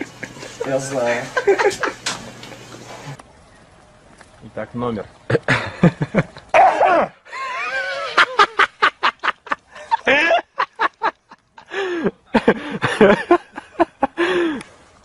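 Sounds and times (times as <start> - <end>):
person laughing: 0.0 - 2.1, 5.3 - 14.6.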